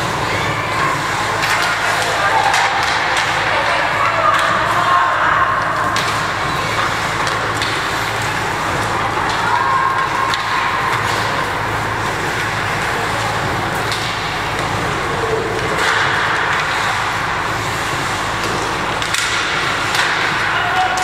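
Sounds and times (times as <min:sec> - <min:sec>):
rink hum and rushing noise: 0:00.0 - 0:21.0
skates scraping ice: 0:00.0 - 0:21.0.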